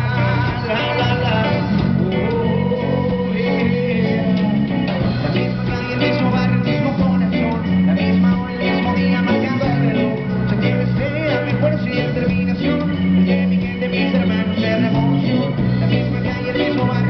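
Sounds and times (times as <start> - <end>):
drums: 0.0 - 17.0
electric bass: 0.0 - 17.0
electric guitar: 0.0 - 17.0
keyboard: 0.0 - 17.0
man singing into microphone: 0.0 - 17.0.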